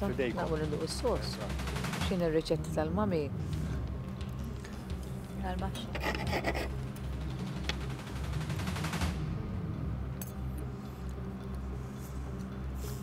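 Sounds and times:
background music: 0.0s - 13.0s.

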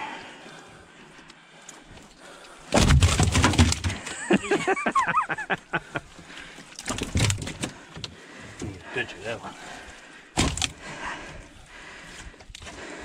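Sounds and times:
wet thumps and clatter: 2.7s - 4.8s, 6.6s - 8.8s, 10.4s - 10.9s
fish flopping on metal floor: 10.4s - 10.8s.

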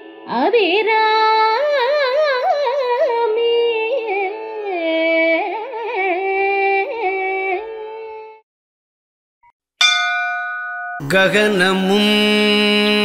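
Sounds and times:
struck tone ringing: 9.8s - 11.4s
person singing devotional hymn: 11.0s - 13.0s.

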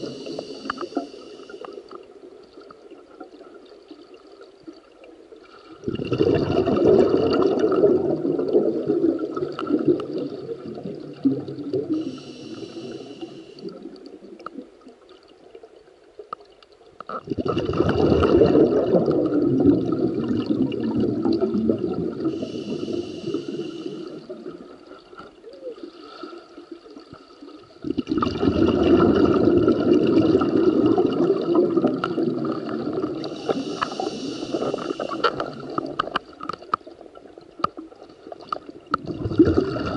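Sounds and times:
regulator inhalation hiss: 0.0s - 1.9s, 11.9s - 13.8s, 22.2s - 24.3s, 33.2s - 35.4s
diver exhaling rumbling bubbles: 5.8s - 14.4s, 17.2s - 24.8s, 27.8s - 36.0s, 39.0s - 39.9s.

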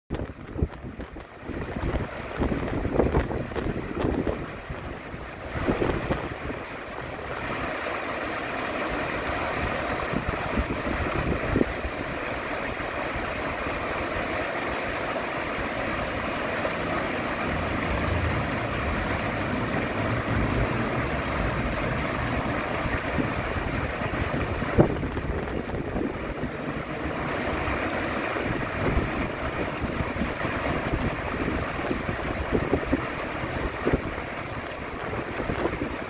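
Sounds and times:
stream rushing over rocks: 0.2s - 36.0s.

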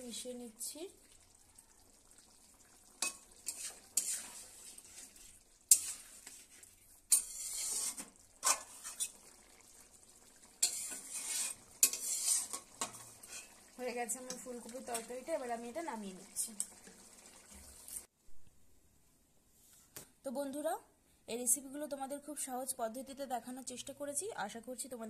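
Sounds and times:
metal spatula scraping pan: 3.0s - 9.2s, 10.6s - 13.6s.

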